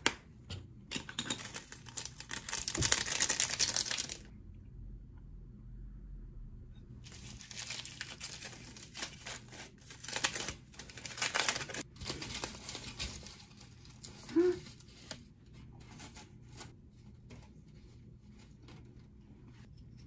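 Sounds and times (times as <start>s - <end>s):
aluminium foil crinkling: 1.3s - 4.3s, 7.0s - 16.7s.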